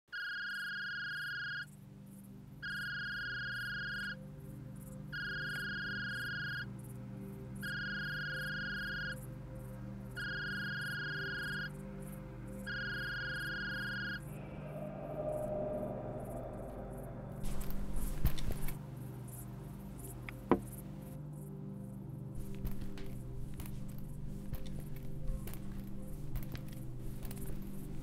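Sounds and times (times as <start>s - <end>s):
low hum: 11.2s - 21.1s.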